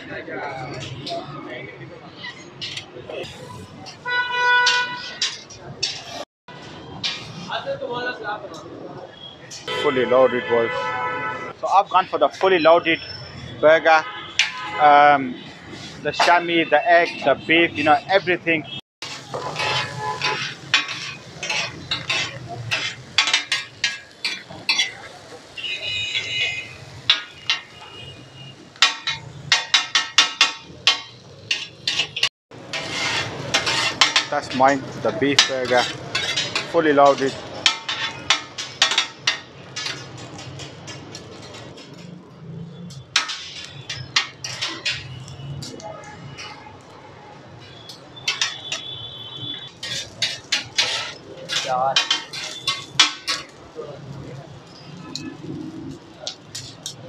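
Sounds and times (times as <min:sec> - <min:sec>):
metal spatula clanking on griddle: 0:04.6 - 0:06.2, 0:07.0 - 0:07.5, 0:14.3 - 0:14.8, 0:19.0 - 0:25.6, 0:26.9 - 0:27.9, 0:28.8 - 0:42.2, 0:42.9 - 0:46.7, 0:47.6 - 0:53.6.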